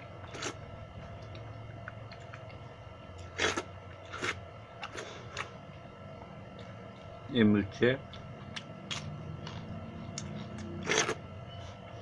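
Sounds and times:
wet mouth eating sounds: 3.2s - 5.6s, 8.0s - 11.2s.

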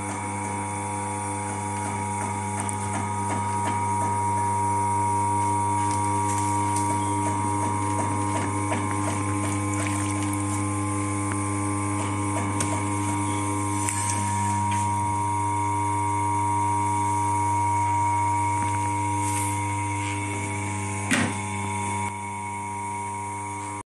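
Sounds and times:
potter's wheel motor humming: 0.0s - 23.8s.

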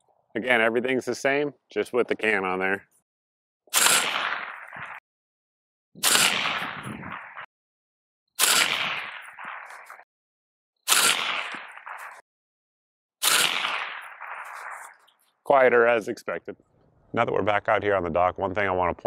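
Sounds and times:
suppressed rifle shots with echo: 3.7s - 5.0s, 6.0s - 7.5s, 8.4s - 10.1s, 10.9s - 12.2s, 13.2s - 15.0s.

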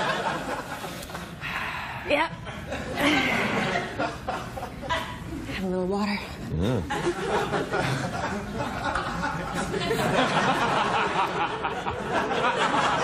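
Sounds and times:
studio audience laughing: 0.0s - 1.4s, 2.5s - 5.3s, 6.8s - 13.0s.

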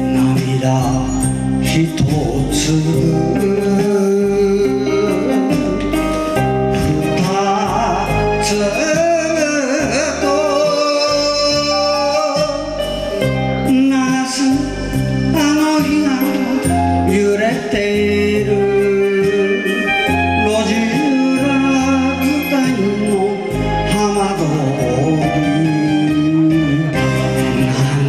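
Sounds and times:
instrumental accompaniment: 0.0s - 28.0s
man singing a ballad: 0.0s - 28.0s.

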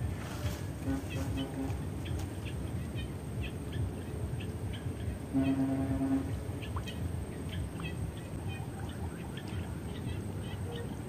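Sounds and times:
horn note: 0.4s - 1.9s, 5.3s - 6.4s.

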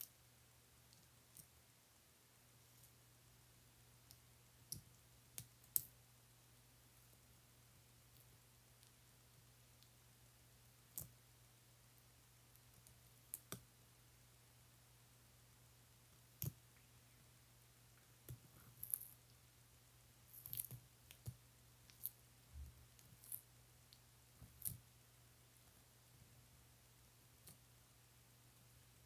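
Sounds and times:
faint low hum: 0.0s - 29.0s.

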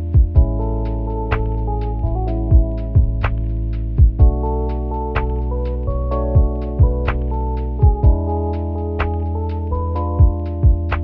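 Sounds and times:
low drum thumps: 0.0s - 4.6s, 5.2s - 8.4s, 10.0s - 11.0s
keyboard chords: 0.0s - 11.0s.

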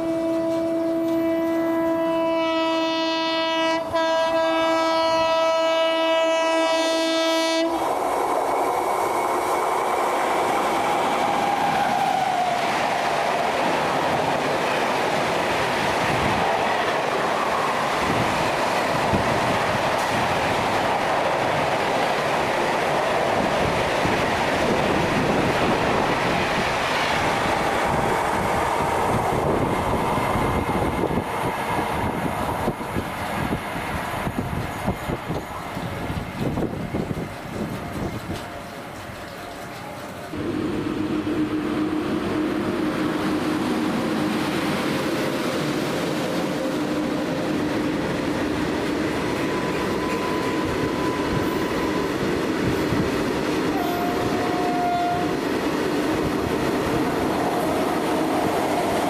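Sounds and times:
locomotive horn chord: 0.0s - 7.8s, 40.3s - 43.4s, 53.7s - 55.4s
train wheels clacking on rails: 7.7s - 40.5s, 41.8s - 59.0s.

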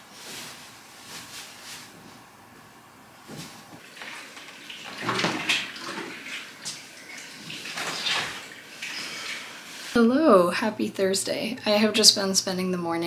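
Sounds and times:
fabric rustling: 0.0s - 3.8s.

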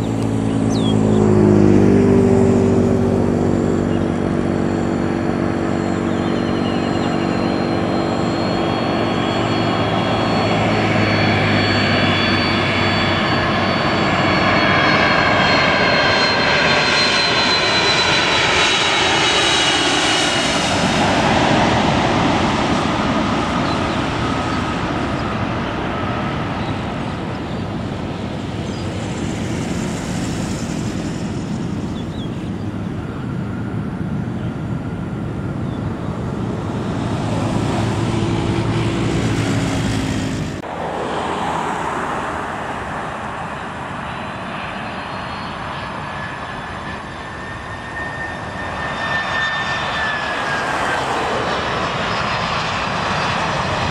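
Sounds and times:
jet engines with fan whine: 0.0s - 53.9s.

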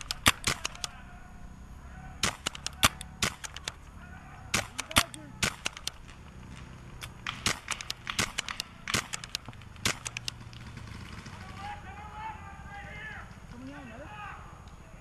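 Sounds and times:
paintball markers firing: 0.0s - 1.0s, 2.2s - 3.8s, 4.5s - 10.8s.

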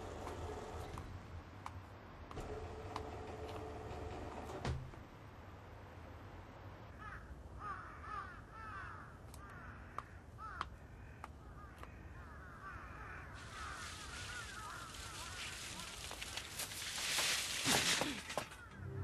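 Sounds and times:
crows cawing: 6.9s - 18.8s.

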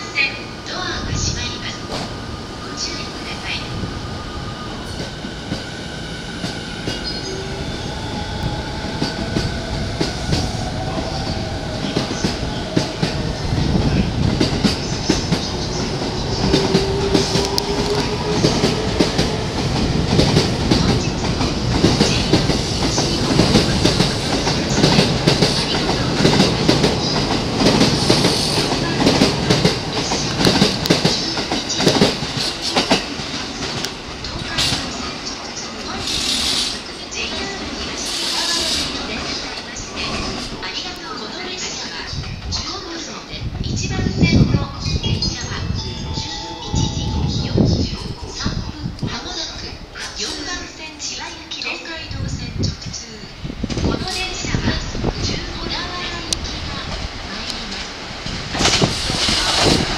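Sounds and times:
train wheels clacking on rail joints: 14.2s - 34.9s, 55.6s - 59.9s.

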